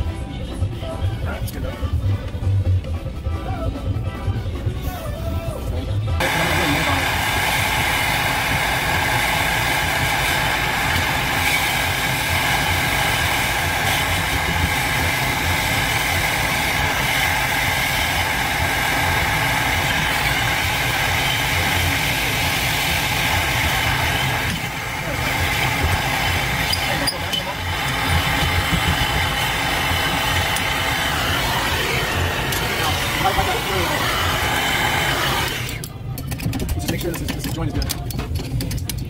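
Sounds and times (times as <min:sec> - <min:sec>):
gas torch hissing: 0:06.2 - 0:35.9.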